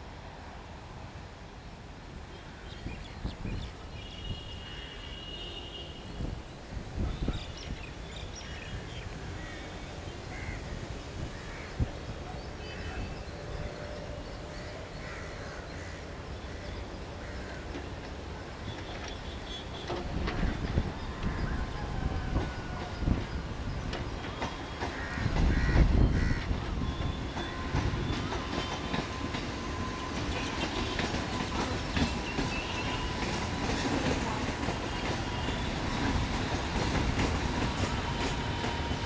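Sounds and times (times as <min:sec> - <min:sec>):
crows cawing: 0:10.3 - 0:10.7, 0:14.5 - 0:16.0, 0:25.0 - 0:26.5.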